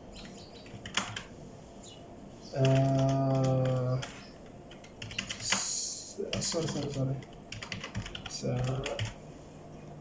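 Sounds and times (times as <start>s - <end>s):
keyboard typing: 0.2s - 1.3s, 2.6s - 9.2s.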